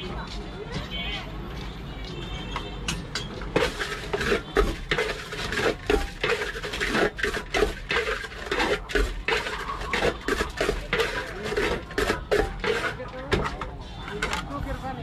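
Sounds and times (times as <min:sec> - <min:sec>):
metal spoon scraping steel bowl: 0:03.3 - 0:14.5.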